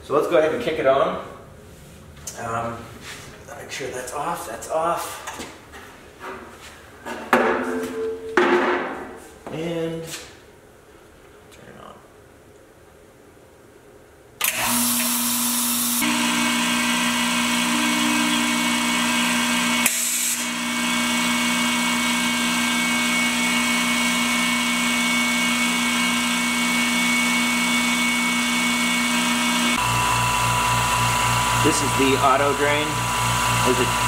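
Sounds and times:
air compressor humming: 14.4s - 34.0s.

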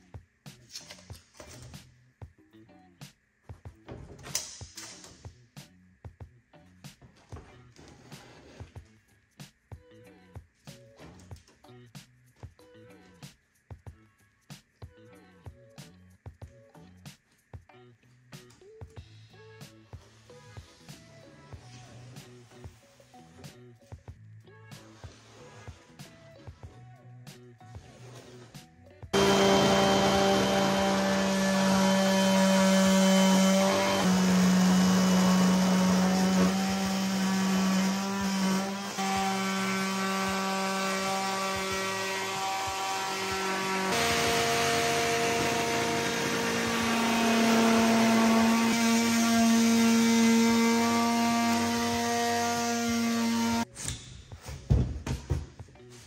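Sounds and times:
multi-tool cutting plywood: 29.2s - 53.7s.

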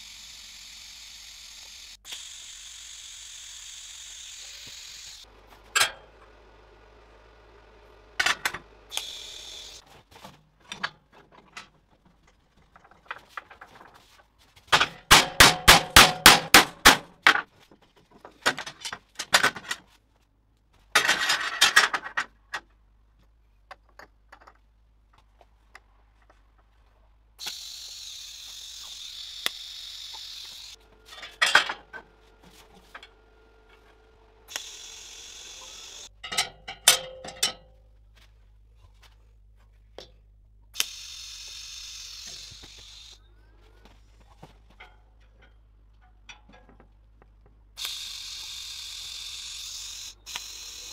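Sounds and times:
loud metal strikes: 15.0s - 17.1s
metal tubes clinking on steel table: 36.2s - 37.8s.

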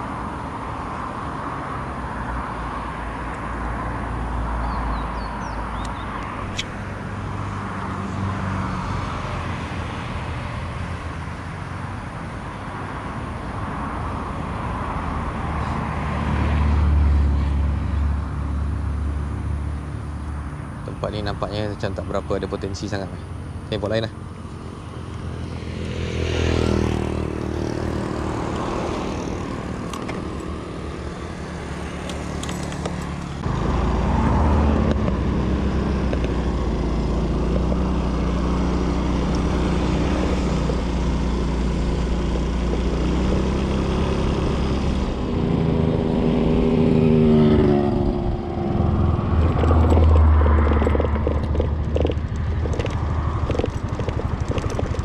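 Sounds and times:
motor scooter engine: 23.2s - 55.0s.

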